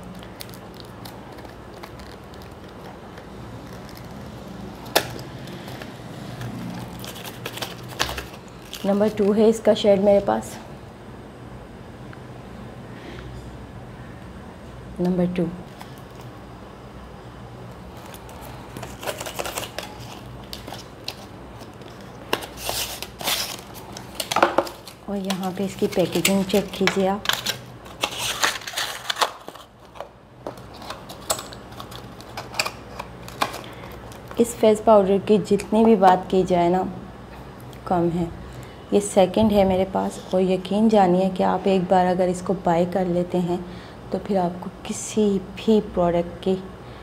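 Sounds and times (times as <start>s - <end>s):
low steady hum: 0.0s - 47.0s
cardboard rustling: 4.9s - 9.4s, 17.9s - 34.4s.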